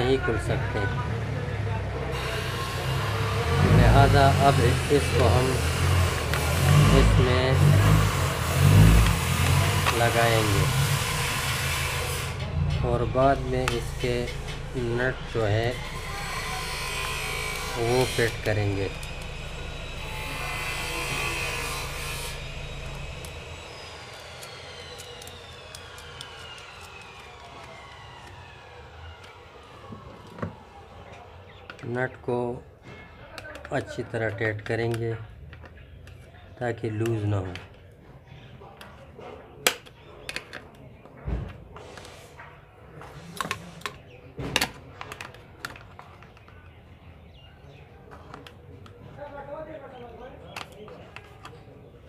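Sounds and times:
passing engine: 0.0 - 31.4
thin whine falling in pitch: 6.6 - 30.1.

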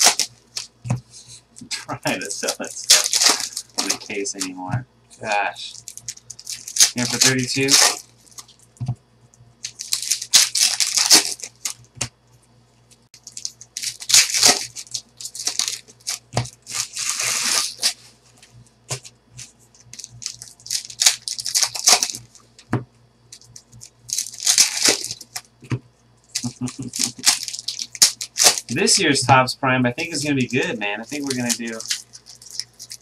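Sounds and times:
foil wrappers crinkling and tearing: 0.0 - 0.8, 2.0 - 4.6, 5.2 - 8.6, 9.6 - 11.9, 13.2 - 18.2, 19.0 - 22.5, 23.3 - 25.5, 26.3 - 29.0, 30.0 - 33.0
cards being shuffled: 2.1 - 4.6, 6.1 - 8.6, 13.2 - 22.3, 30.0 - 33.0.

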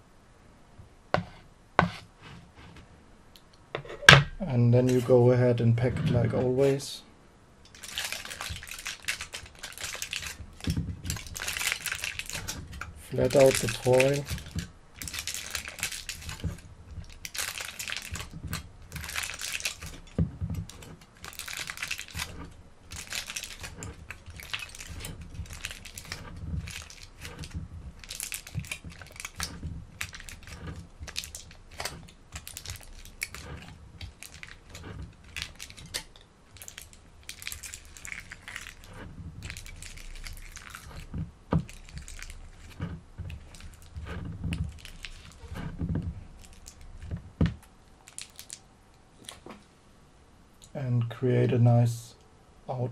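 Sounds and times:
aluminium foil crinkling: 7.7 - 49.5.

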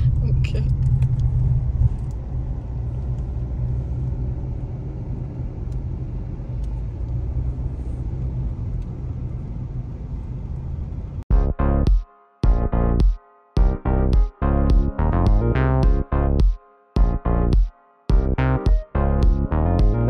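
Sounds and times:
car cabin driving rumble: 0.0 - 11.2
music: 11.3 - 20.0.

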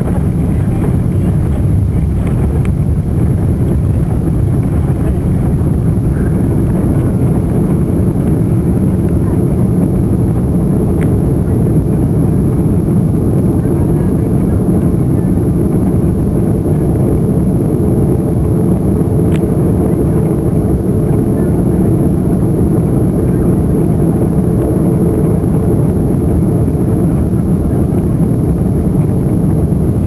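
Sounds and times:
airliner engines and wheels rumbling: 0.0 - 30.0.

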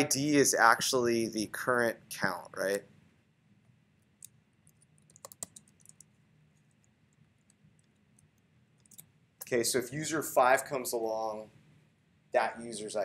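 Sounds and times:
faint keyboard typing: 3.6 - 9.6.

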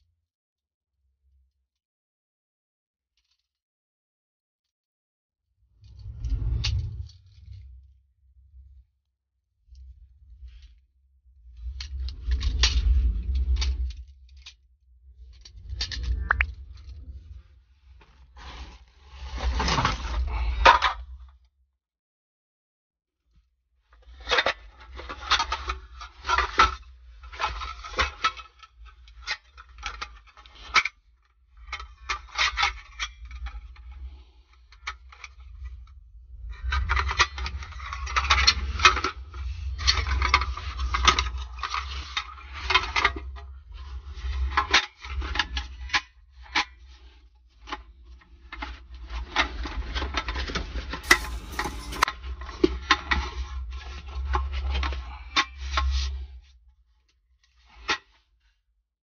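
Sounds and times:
objects rubbing and clattering: 51.0 - 52.1.

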